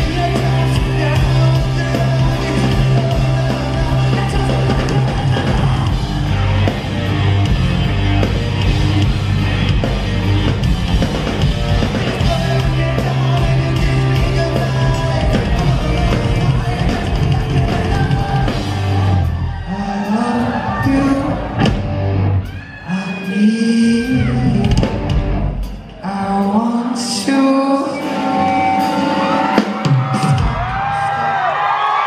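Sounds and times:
person singing: 0:00.0 - 0:06.8, 0:11.7 - 0:21.8, 0:22.7 - 0:25.3, 0:25.9 - 0:31.3
electric guitar: 0:00.0 - 0:19.7
drum kit: 0:00.0 - 0:22.6, 0:23.8 - 0:26.8, 0:28.0 - 0:31.2
bass guitar: 0:00.0 - 0:22.7, 0:23.9 - 0:26.2.

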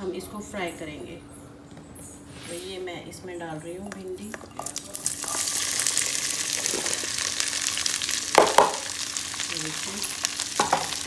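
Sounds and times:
okra sizzling in hot oil: 0:04.6 - 0:11.0.

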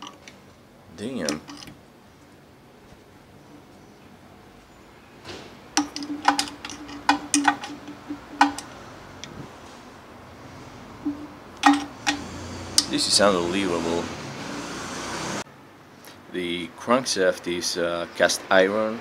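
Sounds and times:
metal pieces clinking: 0:01.2 - 0:01.7, 0:05.8 - 0:08.7, 0:11.1 - 0:12.2.

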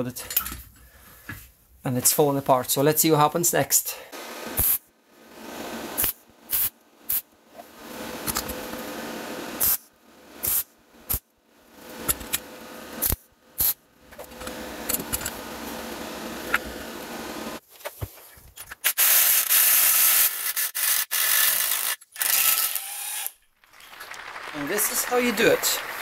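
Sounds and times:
electric arc welder crackling: 0:04.4 - 0:04.9, 0:05.5 - 0:07.3, 0:07.9 - 0:17.6.

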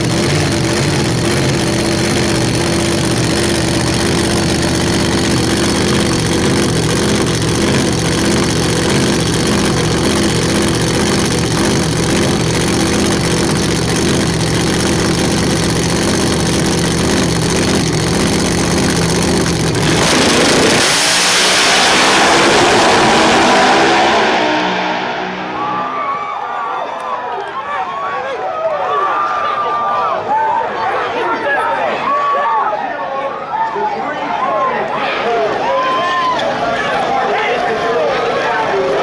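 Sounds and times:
drag car engines idling: 0:00.0 - 0:26.0
drag cars launching at full throttle: 0:00.0 - 0:26.5.

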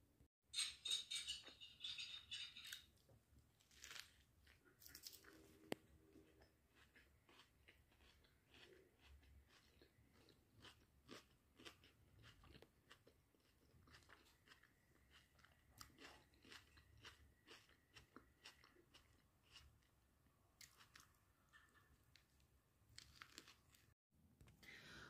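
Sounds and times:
chewing crunchy sandwich: 0:03.6 - 0:20.0, 0:20.6 - 0:24.0.

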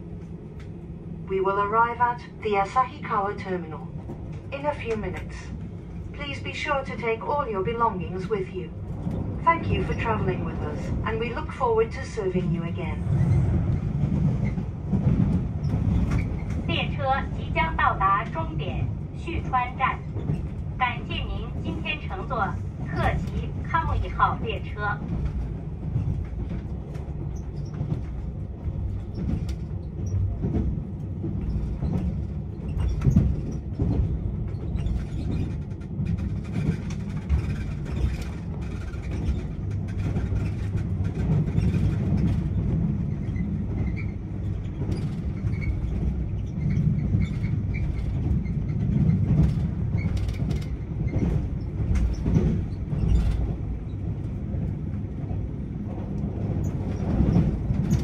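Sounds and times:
train wheels rumbling on rails: 0:00.0 - 0:58.0
clacks and knocks: 0:19.6 - 0:54.7.

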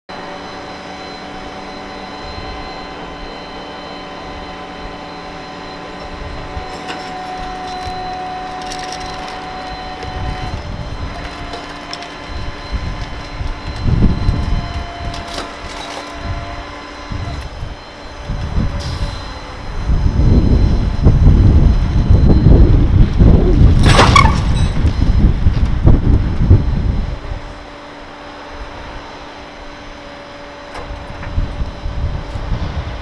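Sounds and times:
faint steady whine: 0:00.1 - 0:33.0
wind buffeting microphone: 0:06.0 - 0:27.6, 0:30.8 - 0:33.0.

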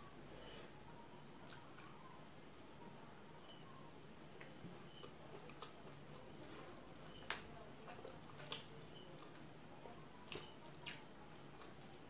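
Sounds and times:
chewing food: 0:04.3 - 0:09.5, 0:10.2 - 0:12.0.

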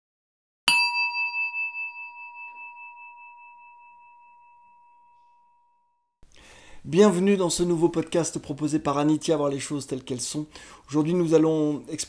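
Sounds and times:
singing bowl ringing: 0:00.7 - 0:06.0.

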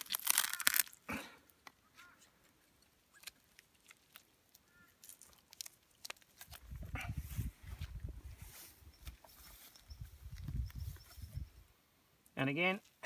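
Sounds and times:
bone joint crackling and tearing: 0:00.0 - 0:01.8, 0:02.8 - 0:06.8.

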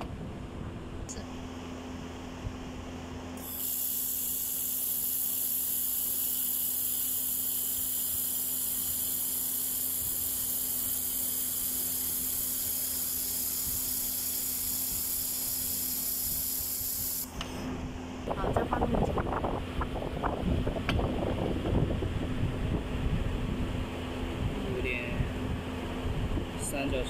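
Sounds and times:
steady low hum: 0:00.0 - 0:27.0
laser welder hissing: 0:03.4 - 0:17.3.

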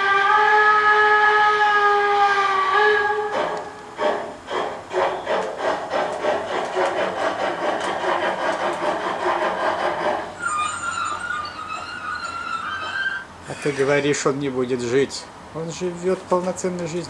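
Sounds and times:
model steam locomotive chuffing: 0:02.8 - 0:14.2
steady high tone: 0:10.4 - 0:14.1.

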